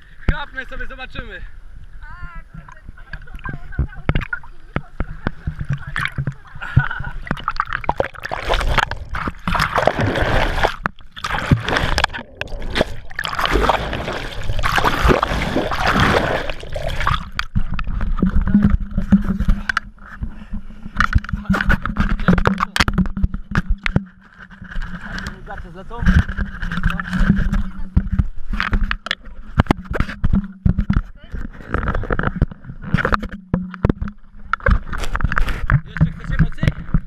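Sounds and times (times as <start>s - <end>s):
water rushing and splashing: 2.4s - 19.9s.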